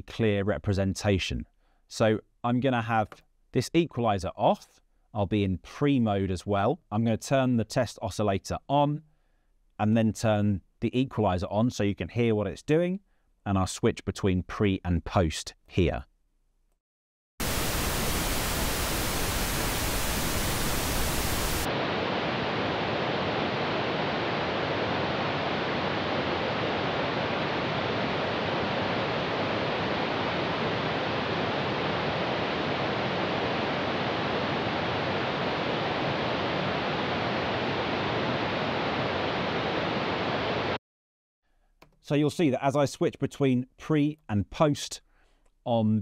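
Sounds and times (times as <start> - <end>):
pink noise hiss: 17.4 - 40.8.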